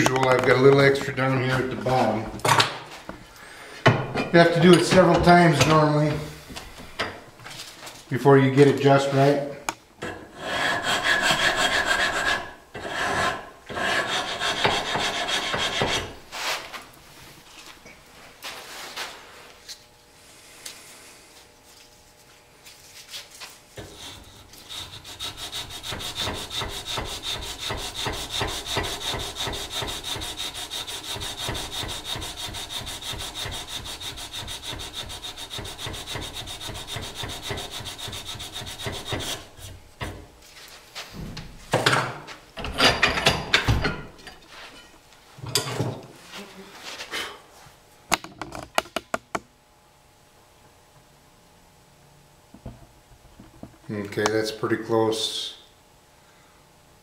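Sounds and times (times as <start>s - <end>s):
tools knocking and clattering: 3.8s - 6.2s, 41.7s - 46.0s, 48.1s - 49.4s
sandpaper rasping on wood: 10.4s - 16.6s, 23.0s - 39.8s.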